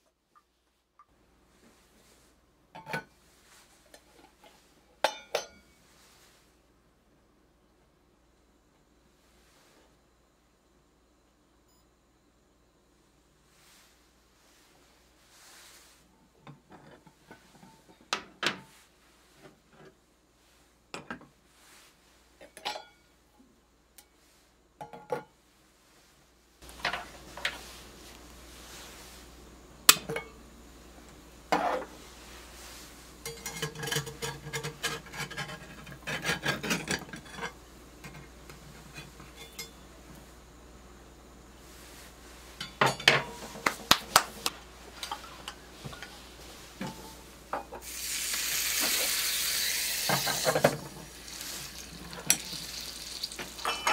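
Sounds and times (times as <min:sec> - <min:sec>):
enamel clinking on iron skillets: 0:03.9 - 0:05.8, 0:22.4 - 0:23.2, 0:29.9 - 0:30.4, 0:33.2 - 0:40.0, 0:42.4 - 0:53.9
steady low hiss: 0:17.2 - 0:34.4, 0:37.1 - 0:53.9
skillets clattering: 0:33.2 - 0:38.2, 0:42.6 - 0:46.2, 0:50.0 - 0:53.9.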